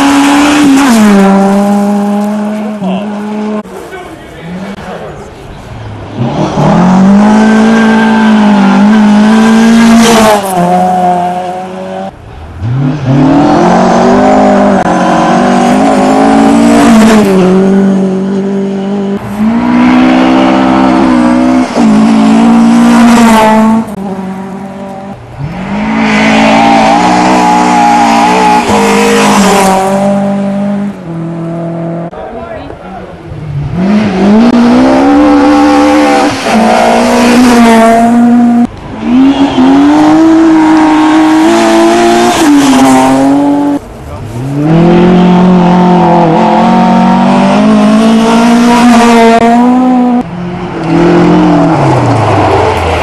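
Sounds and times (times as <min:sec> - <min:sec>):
rally car engines revving: 0:00.0 - 0:53.0.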